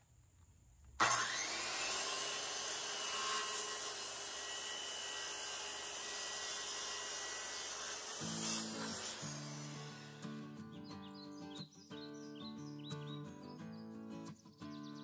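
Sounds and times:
circular saw cutting wood: 0:01.0 - 0:10.6.

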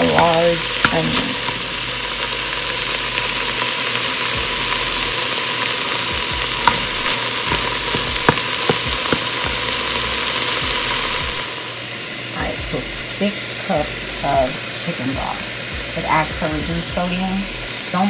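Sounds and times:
sausage and onion sizzling in pot: 0:00.0 - 0:18.0
spatula scraping and knocking pot: 0:06.6 - 0:09.6.

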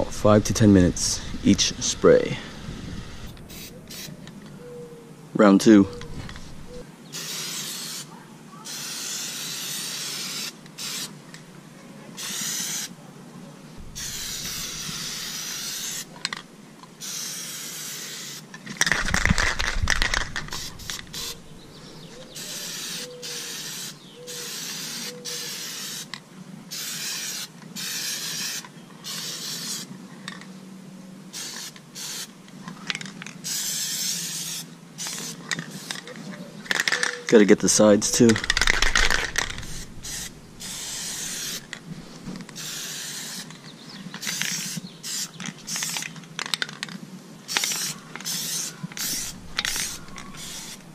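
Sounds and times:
aerosol can spraying hiss: 0:02.4 - 0:04.2, 0:06.5 - 0:11.1, 0:12.2 - 0:12.9, 0:13.9 - 0:16.1, 0:17.0 - 0:21.6, 0:22.3 - 0:26.1, 0:26.7 - 0:29.9, 0:33.4 - 0:36.0, 0:38.4 - 0:43.5, 0:44.2 - 0:46.0, 0:47.5 - 0:50.9.

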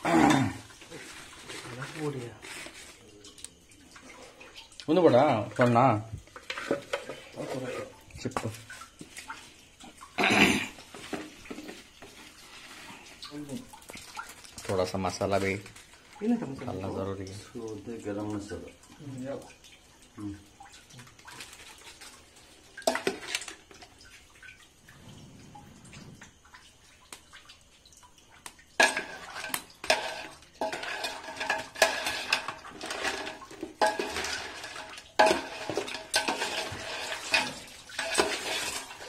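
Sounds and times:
spoon stirring in metal pot: 0:06.2 - 0:09.2, 0:22.8 - 0:23.8, 0:28.8 - 0:39.0.

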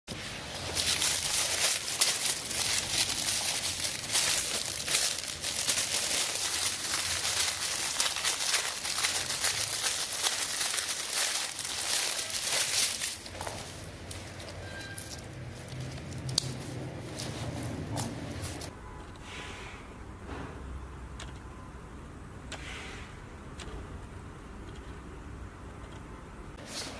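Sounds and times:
plastic bag crinkling: 0:00.1 - 0:18.7.

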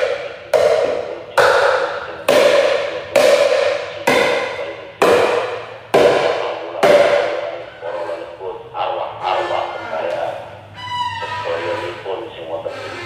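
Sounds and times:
ringing sharp knocks: 0:00.0 - 0:07.7.

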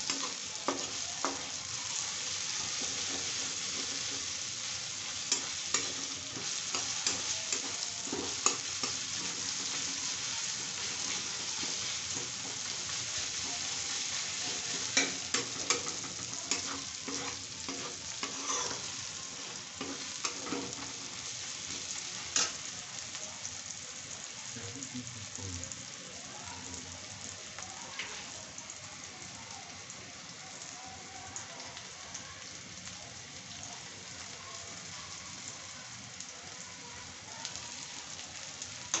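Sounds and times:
vegetables sizzling in hot oil: 0:00.0 - 0:39.0
metal spatula scraping pan: 0:13.3 - 0:22.6.

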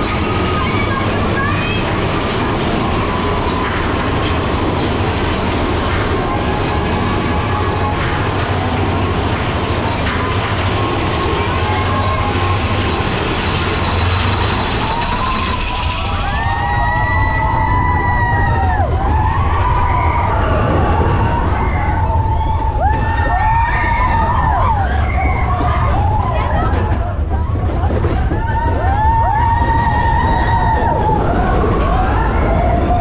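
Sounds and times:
roller coaster rumbling on track: 0:00.0 - 0:33.0
wind rushing: 0:00.0 - 0:33.0
riders screaming: 0:10.9 - 0:33.0.

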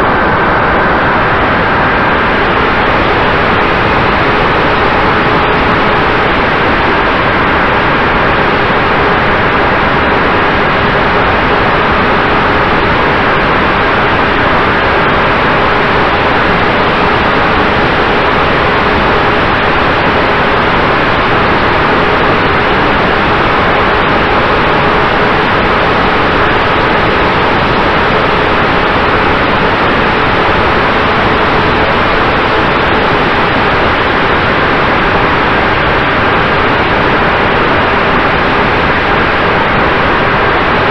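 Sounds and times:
rush of airflow: 0:00.0 - 0:40.9.

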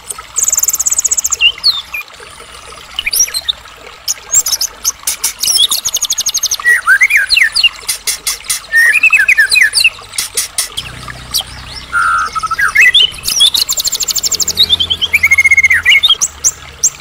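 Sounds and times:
songbird whistling and trilling: 0:05.4 - 0:07.8, 0:08.5 - 0:10.0, 0:10.8 - 0:17.0.

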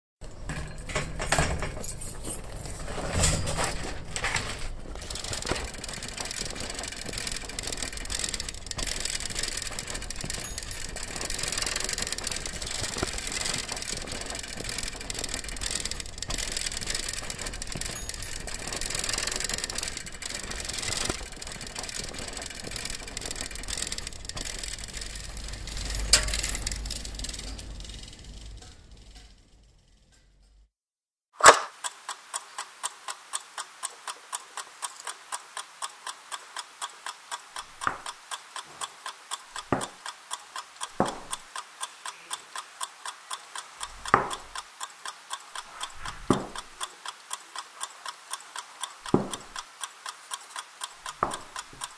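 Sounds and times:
low hum: 0:04.2 - 0:30.7.

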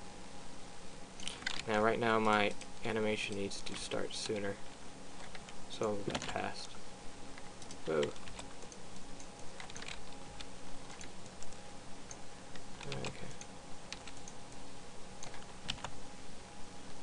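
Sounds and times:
faint steady hum: 0:00.0 - 0:17.0
keyboard keystrokes: 0:01.2 - 0:02.7, 0:07.6 - 0:12.2, 0:15.2 - 0:15.9.

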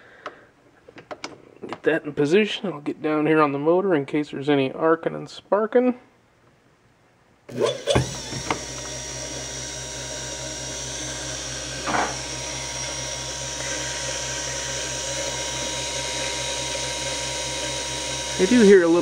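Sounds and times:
dynamotor hum and whine: 0:07.5 - 0:19.0.

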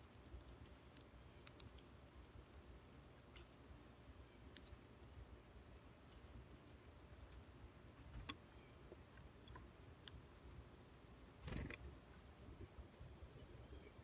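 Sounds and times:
bird cracking seeds: 0:00.0 - 0:02.4.

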